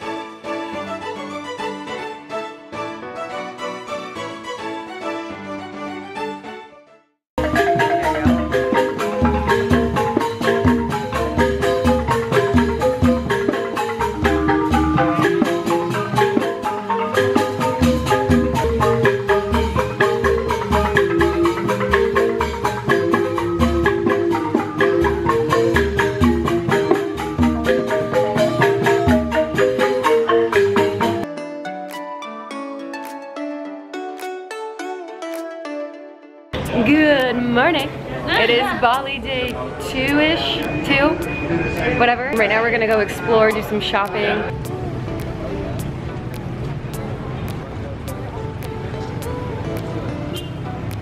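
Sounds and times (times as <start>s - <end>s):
metallophones ringing mallet patterns: 7.4s - 35.3s, 36.5s - 46.1s.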